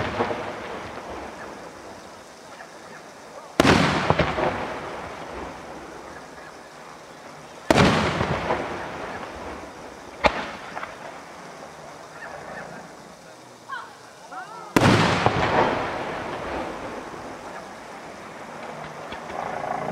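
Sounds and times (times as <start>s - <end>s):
sharp firework crack: 0.0s - 2.1s, 3.5s - 6.8s, 7.6s - 11.6s, 14.7s - 19.5s
firework shells bursting: 0.0s - 2.2s, 3.5s - 6.8s, 7.5s - 12.0s, 14.7s - 19.6s.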